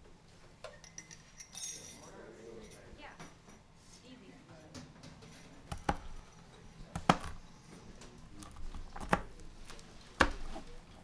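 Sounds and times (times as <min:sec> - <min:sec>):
knife chopping on plastic cutting board: 0:05.6 - 0:06.2, 0:06.8 - 0:07.4, 0:08.4 - 0:10.8.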